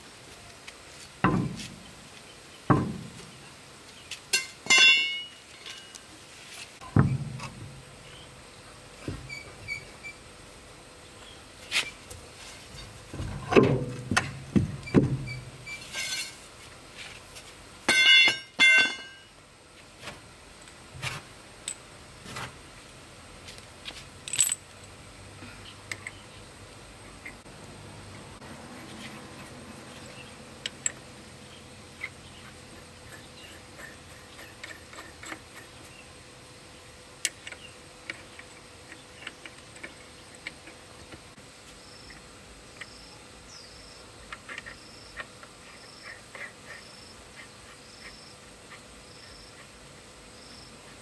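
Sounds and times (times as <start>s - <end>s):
dull knocks and thuds: 1.2s - 1.7s, 2.7s - 3.2s
ringing metal clinks: 4.3s - 5.9s, 17.9s - 19.3s.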